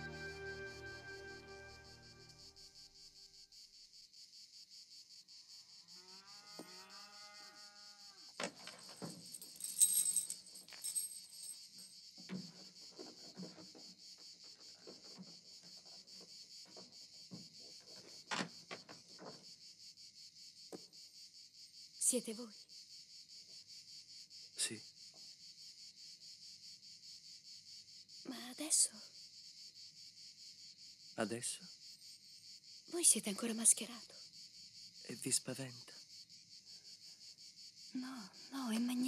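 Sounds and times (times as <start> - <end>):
crickets chirring: 0.4 - 39.0.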